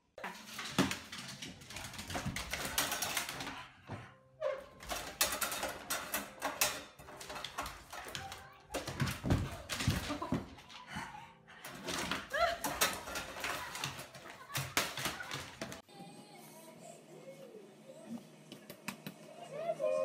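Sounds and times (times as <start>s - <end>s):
dog paws scraping on door: 0.2s - 11.0s, 11.6s - 15.8s.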